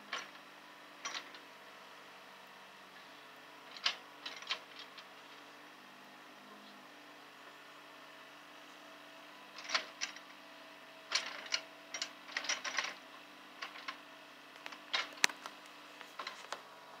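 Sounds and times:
excavator engine drone: 0:00.0 - 0:17.0
sharp clicks and clatters: 0:00.1 - 0:00.4, 0:01.0 - 0:01.4, 0:03.7 - 0:05.1, 0:09.6 - 0:10.2, 0:11.1 - 0:13.0, 0:13.6 - 0:16.7.

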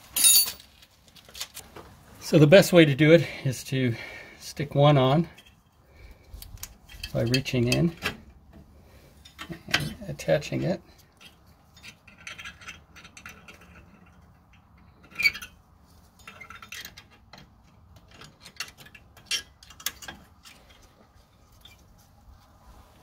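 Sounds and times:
light metallic clicks and scrapes: 0:05.3 - 0:22.1.

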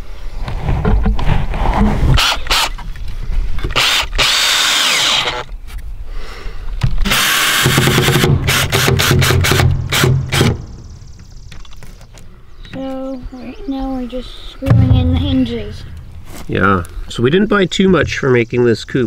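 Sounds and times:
cordless drill motor whining: 0:03.8 - 0:05.4.

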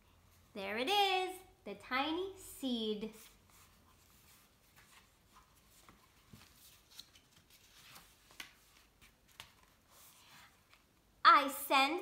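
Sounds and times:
paper pages rustling and turning: 0:03.1 - 0:11.1.

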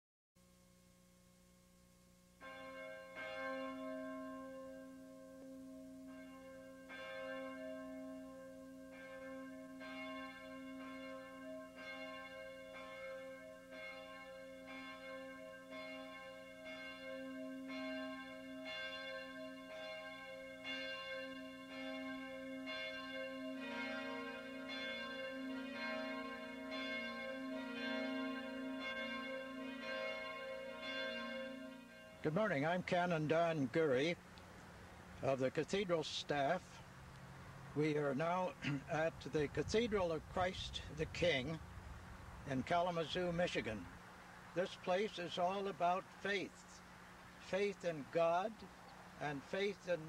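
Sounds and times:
church bells ringing: 0:02.4 - 0:34.2, 0:42.5 - 0:43.8, 0:44.6 - 0:46.5, 0:47.5 - 0:50.0
lower-pitched bells: 0:02.4 - 0:34.2.

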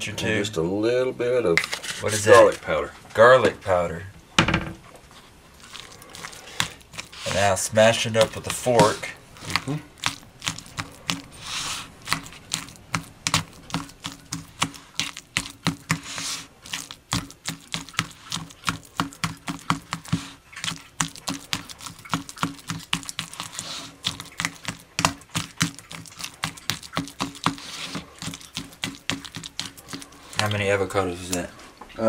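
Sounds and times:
avocado squishing: 0:05.0 - 0:31.6
fork tapping plastic tub: 0:08.0 - 0:11.3, 0:12.1 - 0:16.1, 0:16.8 - 0:27.6, 0:28.2 - 0:30.5.

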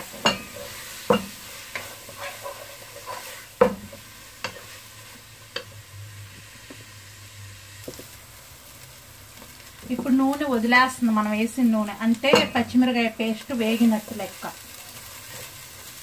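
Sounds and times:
spatula scraping a pot: 0:00.0 - 0:05.1
faint sizzle: 0:00.0 - 0:16.0.

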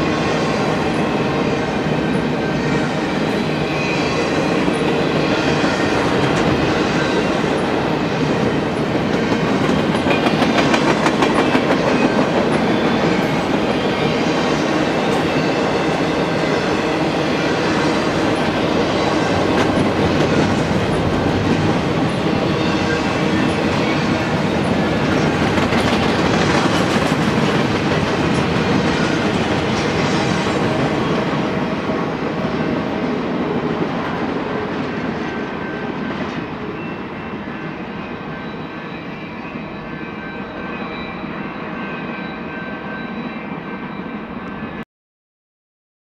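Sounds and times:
freight train clattering on rails: 0:00.0 - 0:36.8.

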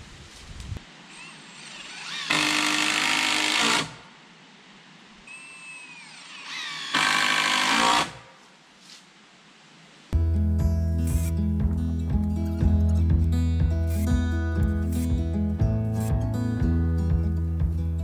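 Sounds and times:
cordless drill driving screws: 0:01.1 - 0:04.0, 0:05.3 - 0:08.2.

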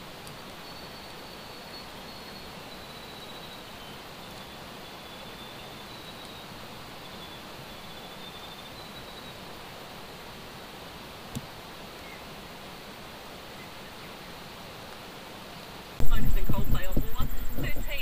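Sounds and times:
steady rushing hiss: 0:00.0 - 0:18.0
high insect trills: 0:16.0 - 0:18.0.

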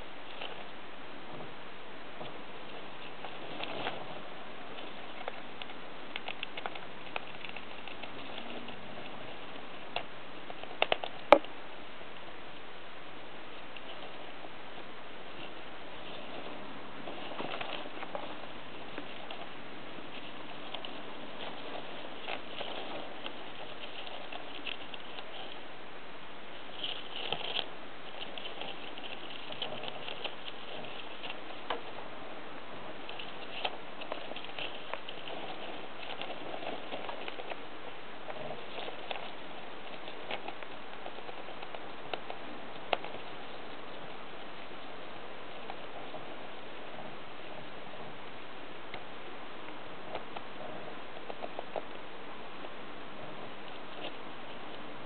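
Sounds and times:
steady hiss: 0:00.0 - 0:55.0
hamster scrabbling in bedding: 0:02.2 - 0:11.4, 0:15.3 - 0:25.6, 0:26.6 - 0:32.0, 0:32.8 - 0:47.6.

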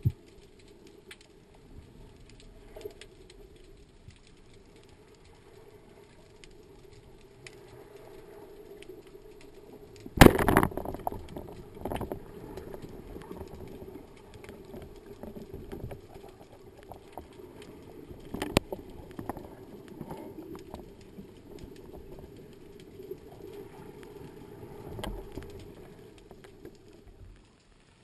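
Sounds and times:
steady low underwater rush: 0:00.0 - 0:28.0
clicks and knocks of handling: 0:14.4 - 0:22.1.

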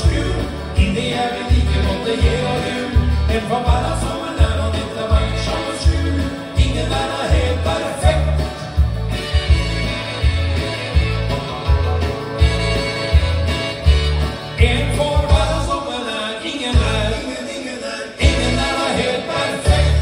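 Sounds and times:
man singing into a microphone: 0:00.0 - 0:08.8, 0:14.6 - 0:20.0
country backing track: 0:00.0 - 0:17.4, 0:18.2 - 0:20.0.

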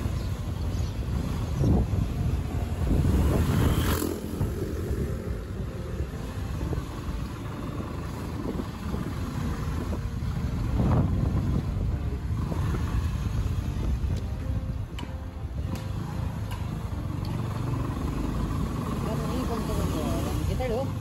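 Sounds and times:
wind noise: 0:00.0 - 0:16.8
vehicle engine and road rumble: 0:00.0 - 0:21.0.

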